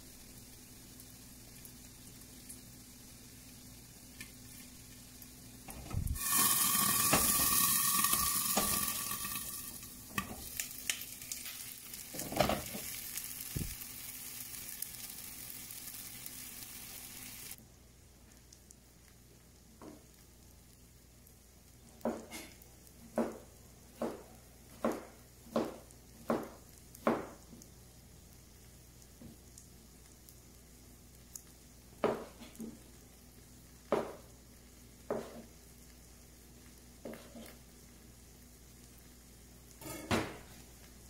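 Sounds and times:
patties sizzling in pans: 0:00.0 - 0:41.0.

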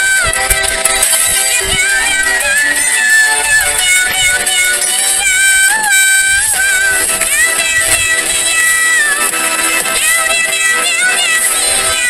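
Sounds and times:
song with sliding high melody: 0:00.0 - 0:12.0.

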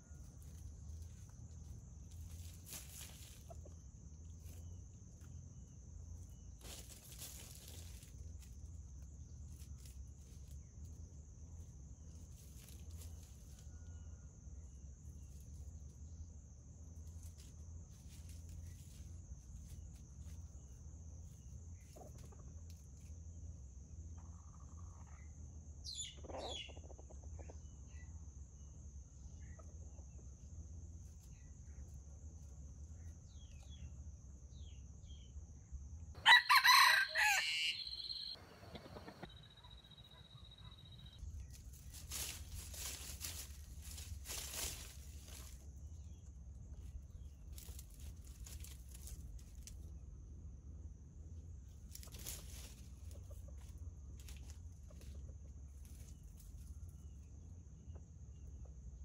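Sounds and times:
faint bird chirps: 0:24.2 - 0:28.1, 0:36.7 - 0:43.0
rooster crowing: 0:36.2 - 0:39.4.

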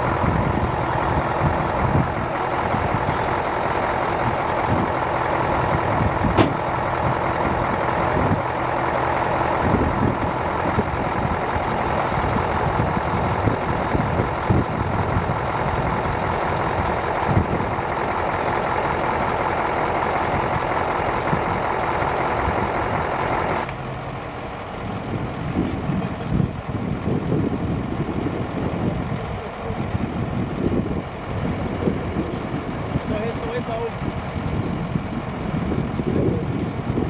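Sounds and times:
diesel engine running: 0:00.0 - 0:37.0
short knocks: 0:06.3 - 0:06.7.

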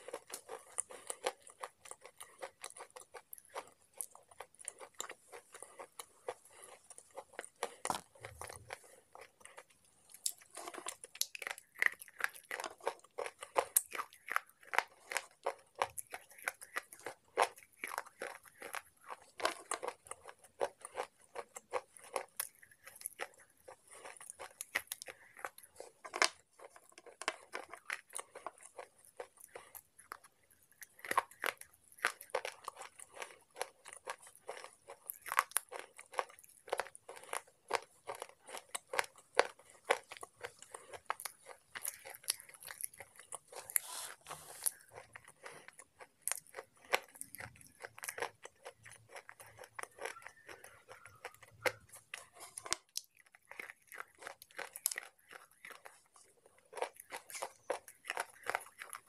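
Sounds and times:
slate pencil crunching: 0:30.4 - 0:50.0.

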